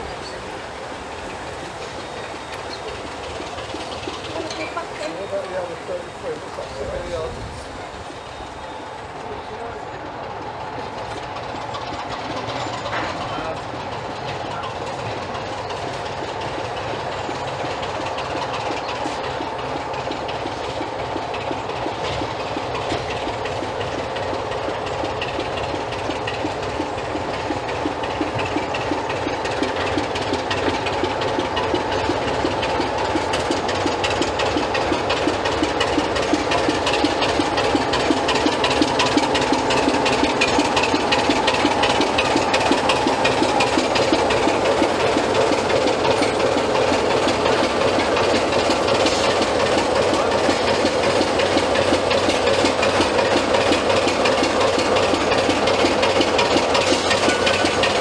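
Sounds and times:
diesel locomotive engine throbbing: 0:00.0 - 0:58.0.

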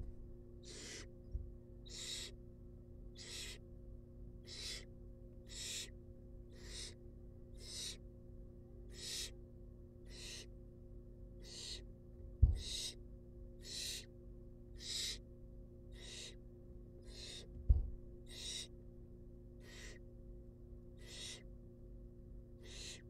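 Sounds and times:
owl nestlings hissing begging calls: 0:00.6 - 0:01.1, 0:01.8 - 0:02.4, 0:03.1 - 0:03.6, 0:04.4 - 0:08.0, 0:08.9 - 0:09.4, 0:10.0 - 0:10.5, 0:11.4 - 0:11.9, 0:12.6 - 0:13.0, 0:13.6 - 0:14.1, 0:14.7 - 0:15.2, 0:15.9 - 0:16.4, 0:17.0 - 0:17.5, 0:18.2 - 0:18.7, 0:19.6 - 0:20.0, 0:21.0 - 0:21.5, 0:22.6 - 0:23.0.

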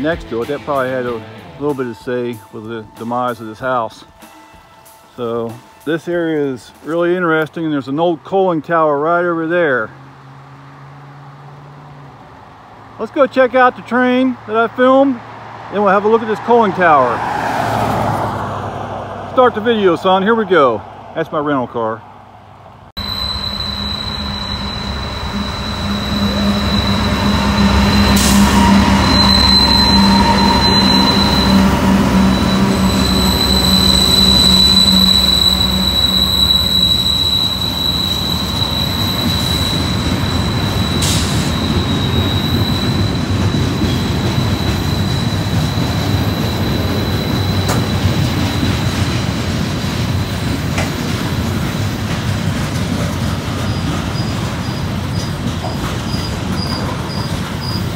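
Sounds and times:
diesel locomotive engines: 0:00.0 - 0:57.9
thin high squeal: 0:23.0 - 0:48.8.

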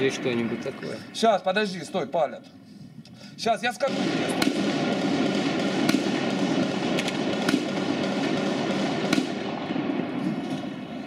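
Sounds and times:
continuous crackle of gunshots: 0:03.7 - 0:11.0
loud single gunshots: 0:03.8 - 0:10.2.

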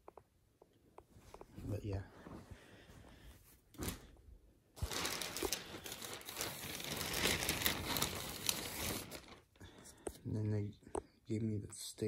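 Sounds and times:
plastic bag crinkling: 0:04.8 - 0:09.6.

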